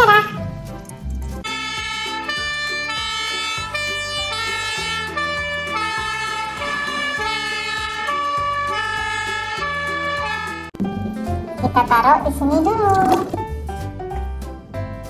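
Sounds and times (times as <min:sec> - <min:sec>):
fire engine siren: 0:01.4 - 0:10.8.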